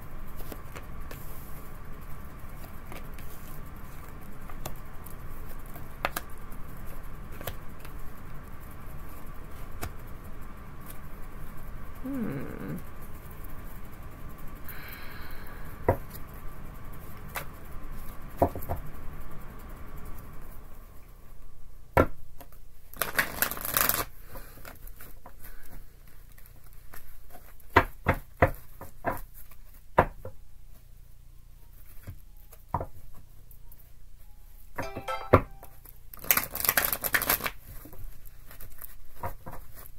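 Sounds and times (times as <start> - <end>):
cards rustling: 23.0 - 24.8, 36.2 - 37.8.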